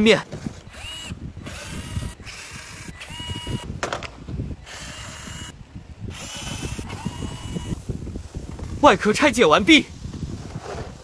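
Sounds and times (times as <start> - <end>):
electric screwdriver whirring: 0.6 - 3.7, 4.6 - 7.9.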